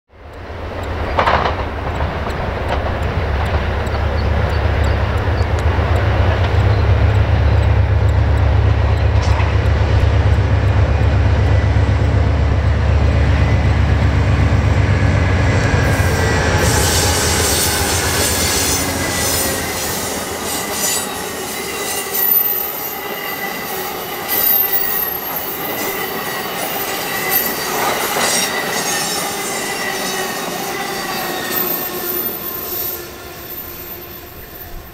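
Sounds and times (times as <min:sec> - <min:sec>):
diesel locomotive rumble: 0:00.1 - 0:22.6
train wheels clattering on rails: 0:00.2 - 0:34.9
clicks: 0:00.3 - 0:12.3
high wheel squeal: 0:02.8 - 0:14.2, 0:15.2 - 0:34.9.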